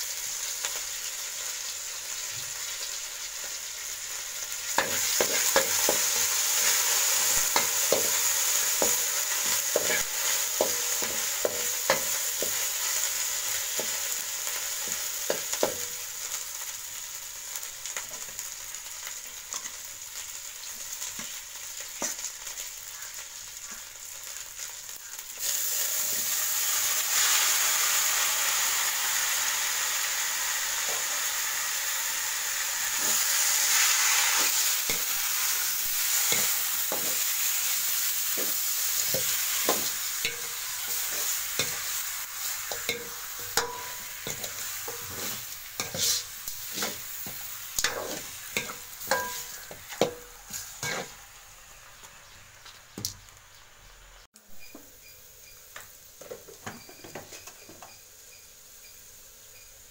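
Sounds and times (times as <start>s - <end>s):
onions sizzling in hot oil: 0.0s - 59.9s
spatula scraping a wok: 4.7s - 15.8s, 32.6s - 51.8s.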